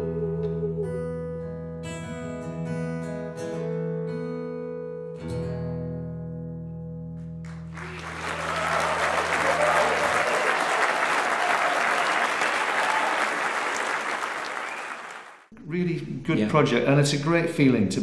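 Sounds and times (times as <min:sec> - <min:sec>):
audience applause: 0:07.5 - 0:15.5.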